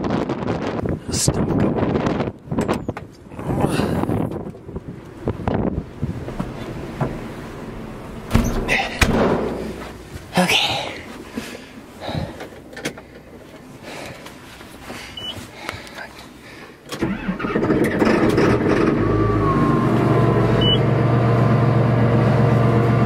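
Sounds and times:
tractor diesel engine starting: 0:16.8 - 0:23.0.

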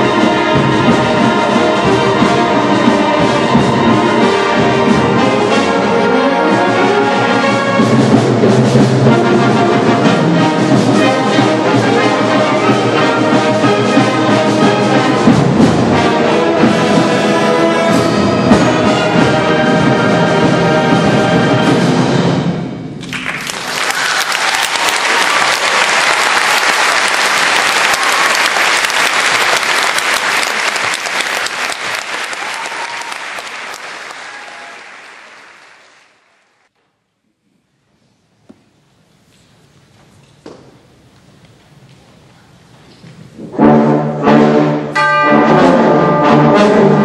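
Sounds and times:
concert band playing: 0:00.0 - 0:23.0, 0:43.4 - 0:47.0
audience applauding: 0:23.0 - 0:36.6.

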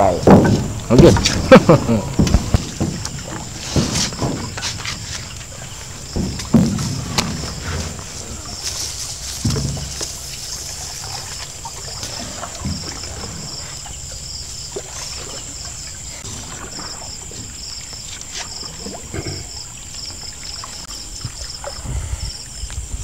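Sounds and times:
knocks against boat planks: 0:00.0 - 0:10.5
night insects chirping: 0:00.0 - 0:23.0
water lapping around boat: 0:00.0 - 0:23.0.

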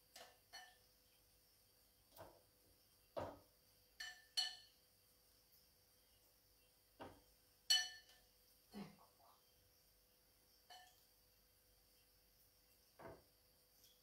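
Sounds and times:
utensil clinking on ceramic: 0:04.0 - 0:04.8, 0:07.7 - 0:08.2.

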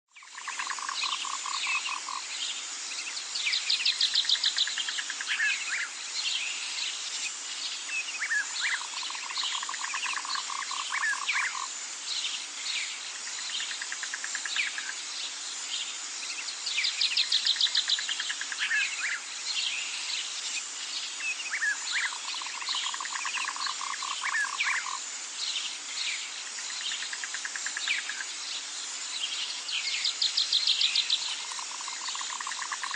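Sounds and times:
insects buzzing trills: 0:00.1 - 0:32.9
steady hiss: 0:00.1 - 0:32.9
frogs trilling: 0:00.2 - 0:02.3, 0:07.9 - 0:11.8, 0:21.2 - 0:25.1, 0:26.5 - 0:28.4, 0:30.4 - 0:32.9.

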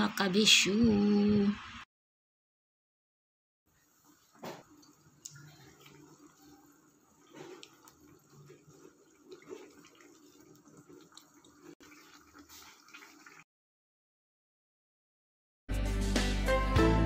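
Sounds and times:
sauce bubbling in a pan: 0:03.8 - 0:13.5.

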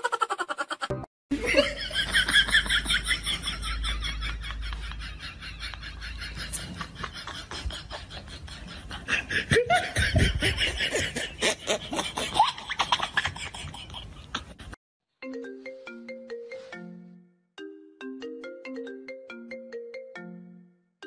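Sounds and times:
laughter: 0:00.0 - 0:14.8
marimba ringtone melody: 0:15.2 - 0:21.0.

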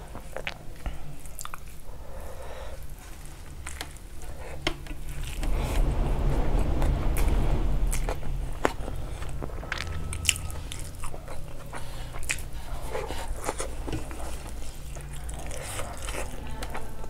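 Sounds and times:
steady low hum: 0:05.0 - 0:10.6.

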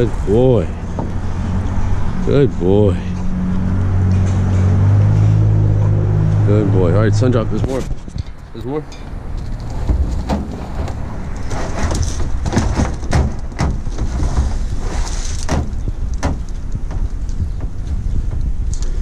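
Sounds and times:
wind buffeting microphone: 0:00.0 - 0:19.0
plastic trash can knocks and scrapes: 0:09.7 - 0:17.0.

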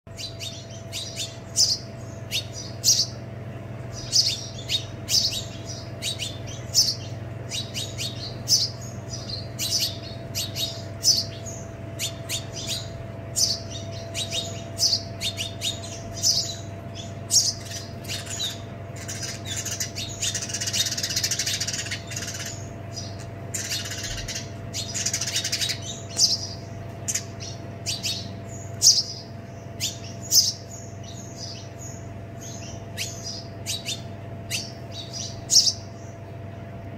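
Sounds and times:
scratchy bird chatter: 0:00.1 - 0:36.5
sparrows chirping: 0:00.1 - 0:36.9
steady low hum: 0:00.1 - 0:36.9.

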